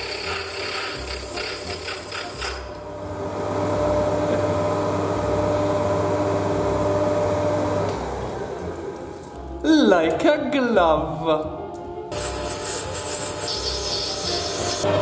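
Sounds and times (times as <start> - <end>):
lathe cutting metal: 0.0 - 2.8, 12.1 - 15.0
lathe spindle hum and whine: 0.0 - 9.6, 12.1 - 15.0.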